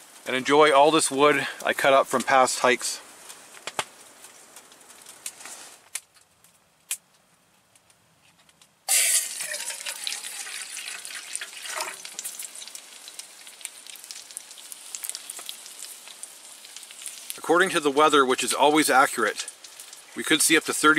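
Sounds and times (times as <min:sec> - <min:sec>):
burger patties sizzling in a pan: 0:08.9 - 0:20.9.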